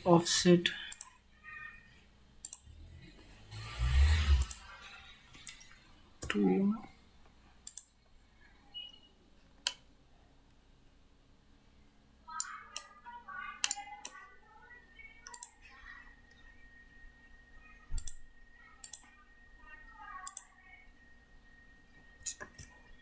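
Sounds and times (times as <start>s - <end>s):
computer mouse clicks: 0.9s - 1.1s, 2.4s - 2.7s, 3.7s - 4.6s, 5.3s - 6.4s, 7.6s - 7.9s, 13.6s - 14.2s, 15.2s - 15.6s, 18.0s - 18.2s, 18.8s - 19.1s, 20.2s - 20.5s.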